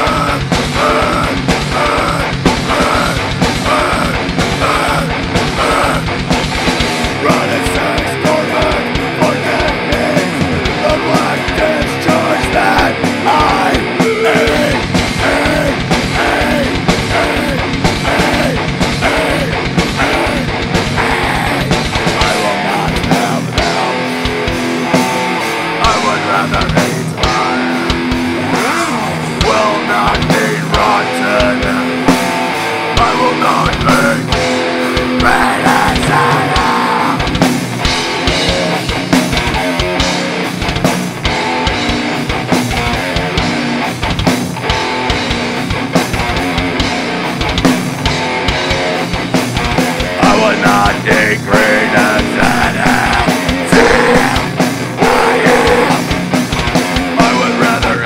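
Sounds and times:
distorted electric guitar: 0.0 - 58.0.

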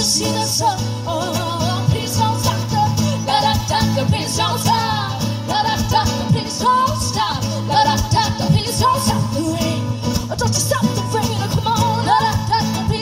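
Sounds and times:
strummed acoustic guitar: 0.0 - 13.0
women singing: 0.0 - 13.0.

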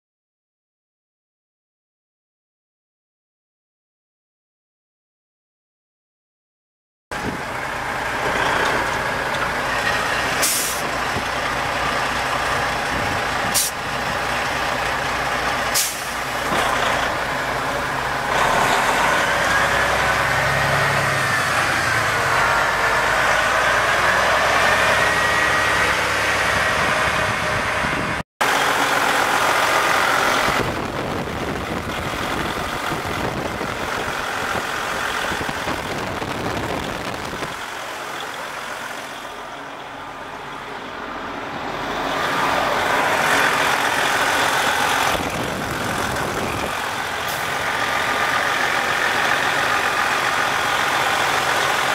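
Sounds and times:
diesel truck engine running: 7.1 - 51.9
short sharp hisses: 10.4 - 10.8, 13.6 - 13.8, 15.8 - 16.2.

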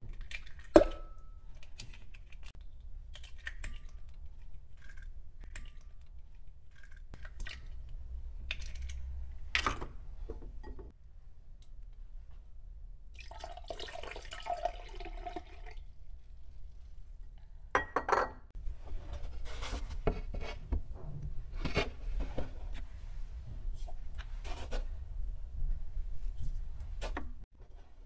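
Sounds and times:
milk pouring into glass jug: 13.2 - 15.9.

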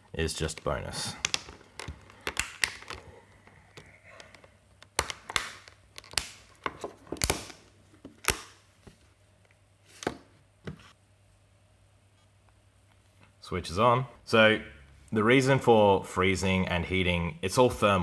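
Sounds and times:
phone being handled: 0.5 - 9.0
plastic phone cover clicking: 4.8 - 8.5.

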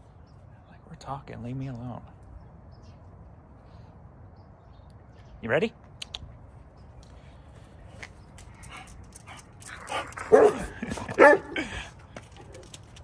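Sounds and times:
dog barking whines: 10.2 - 11.6.

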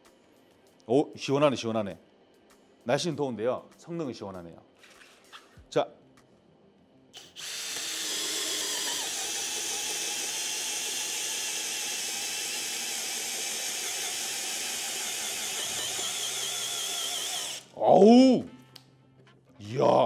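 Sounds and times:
drill boring into wood: 7.2 - 17.8.

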